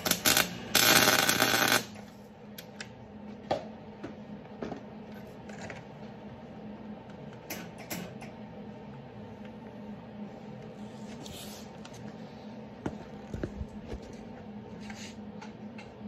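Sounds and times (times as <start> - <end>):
welder arc crackling: 0.0 - 2.1
steady low hum: 0.0 - 16.0.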